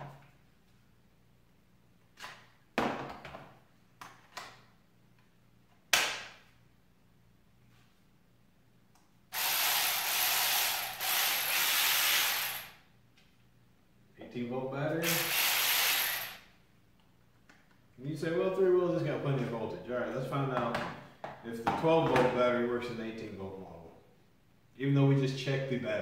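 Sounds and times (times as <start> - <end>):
electric ratchet motor running: 9.3 - 12.8, 15.0 - 16.5.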